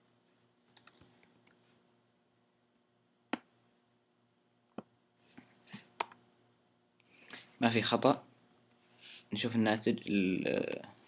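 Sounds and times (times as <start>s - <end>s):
keyboard and mouse clicks: 0.7s - 1.6s, 6.0s - 6.2s.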